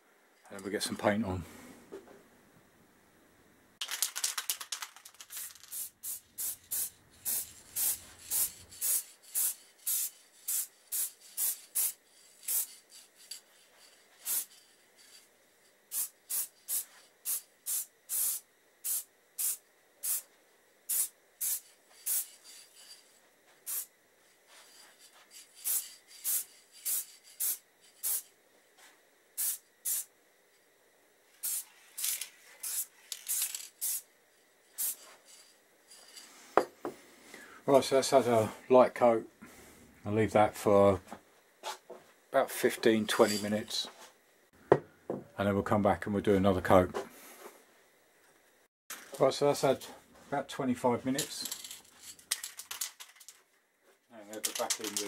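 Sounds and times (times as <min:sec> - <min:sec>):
aerosol spray can hissing: 0:03.9 - 0:15.2, 0:15.9 - 0:20.3, 0:20.9 - 0:23.9, 0:24.5 - 0:28.3, 0:29.4 - 0:30.1, 0:31.4 - 0:34.1, 0:34.7 - 0:36.2.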